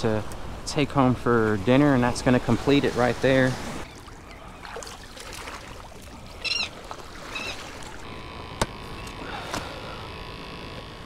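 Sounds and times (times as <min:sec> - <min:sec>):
short high bird calls: 0:06.4 - 0:07.7.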